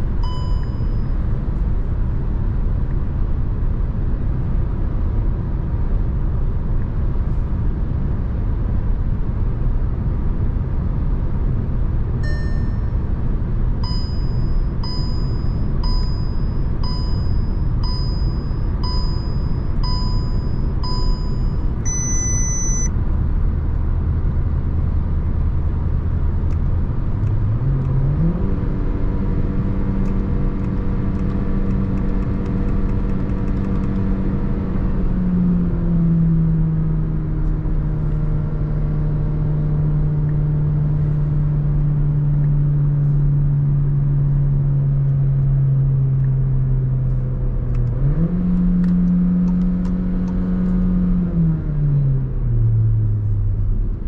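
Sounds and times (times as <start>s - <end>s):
road and tyre rumble: 0.0s - 54.0s
dashboard chime: 0.2s - 1.2s, 12.2s - 13.0s, 13.8s - 22.9s
electronic warning beeps: 0.2s - 1.2s, 12.2s - 13.0s, 13.8s - 22.9s
car engine accelerating: 13.8s - 54.0s.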